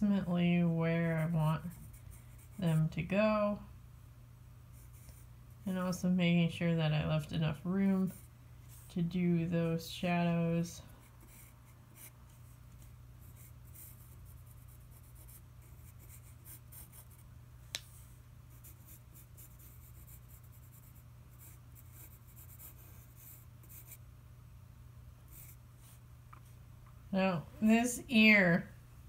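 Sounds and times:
pencil scratching on paper: 0.6s - 2.9s, 11.0s - 17.2s, 18.5s - 24.0s.

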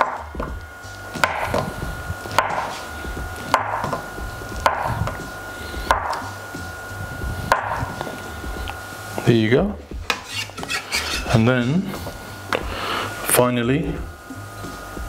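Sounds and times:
knife striking chopping board: 1.2s - 1.7s, 2.3s - 2.8s, 3.5s - 4.0s, 4.6s - 5.2s, 5.9s - 6.2s, 7.5s - 8.0s.

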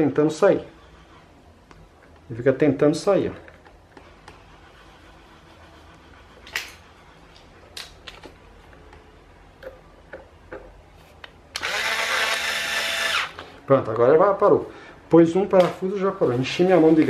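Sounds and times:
cordless screwdriver driving screw: 11.6s - 13.4s.

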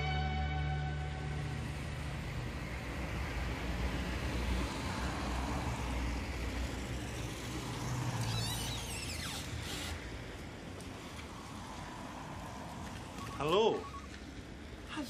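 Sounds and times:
rumble of passing cars: 0.0s - 15.0s
high squeal falling in pitch: 13.2s - 14.1s.

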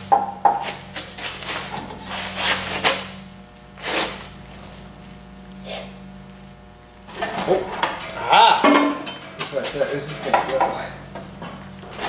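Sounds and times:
steady low hum: 0.0s - 12.0s
metal scraping and knocking: 7.1s - 12.0s.

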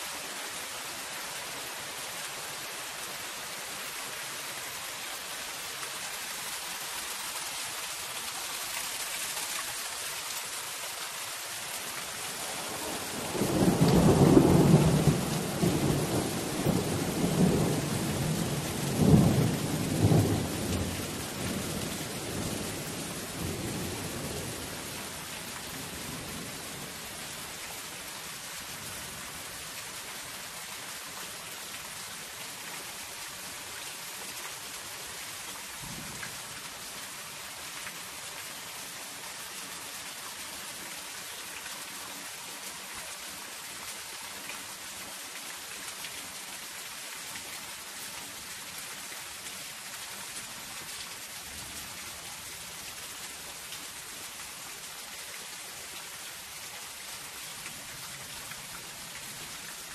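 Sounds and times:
rain on a metal roof: 0.0s - 59.9s
low rumble of thunder: 12.7s - 24.7s.

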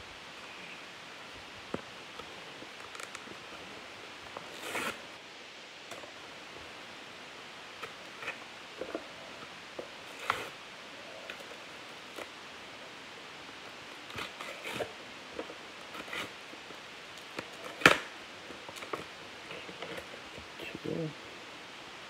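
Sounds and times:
paper and card rustling: 4.3s - 5.0s.

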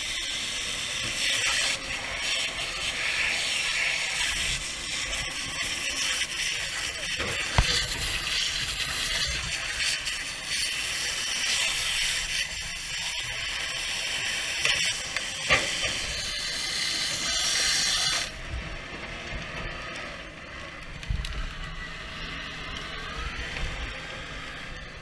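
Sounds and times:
hose spraying water hiss: 0.0s - 18.4s.

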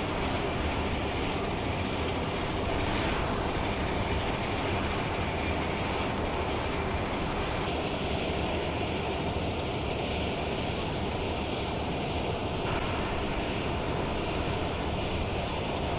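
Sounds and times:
jet engines running: 0.0s - 15.9s.

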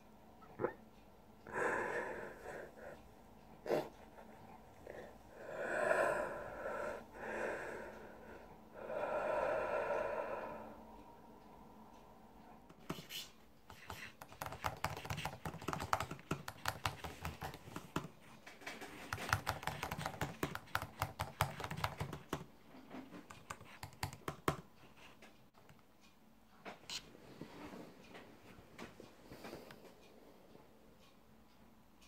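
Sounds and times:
fast typing on laptop keyboard: 12.8s - 22.5s, 23.1s - 24.7s.

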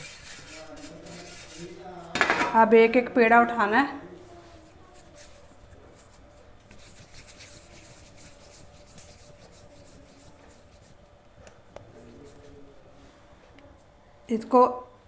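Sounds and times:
hands rolling dough: 0.0s - 2.5s, 4.4s - 12.8s.

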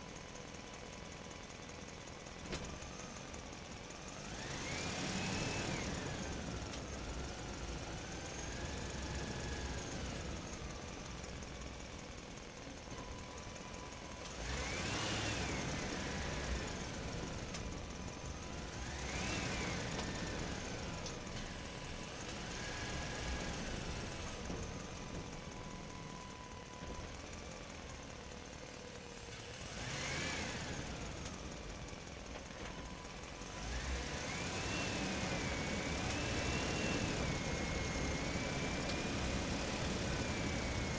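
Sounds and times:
engine revving: 4.2s - 10.4s, 14.2s - 17.4s, 18.4s - 21.2s, 29.5s - 31.4s, 33.5s - 40.9s.

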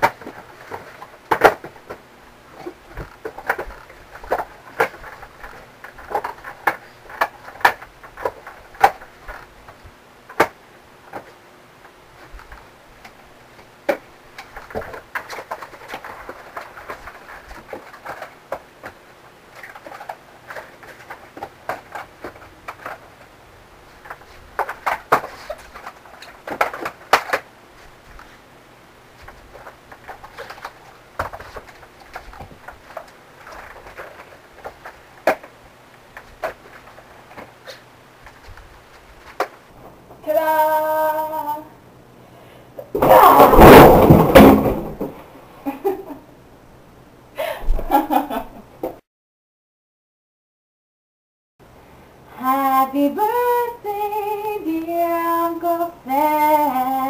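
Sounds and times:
cardboard boxes clattering down: 0.0s - 9.6s, 13.8s - 19.0s, 24.0s - 27.5s, 29.2s - 35.5s, 42.9s - 45.2s
cardboard boxes knocking and scraping: 43.0s - 45.2s.

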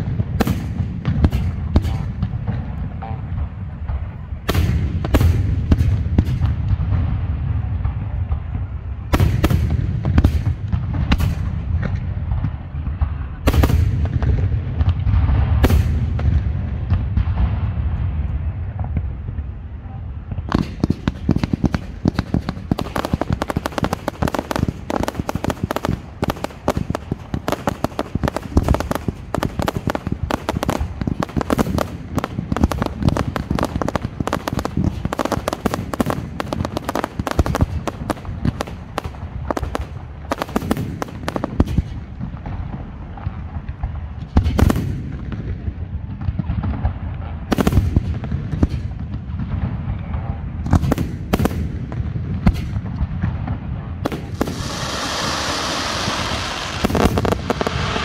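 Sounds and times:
fireworks bangs and crackling: 0.0s - 58.0s
heavy firework shell bursts: 54.0s - 58.0s.

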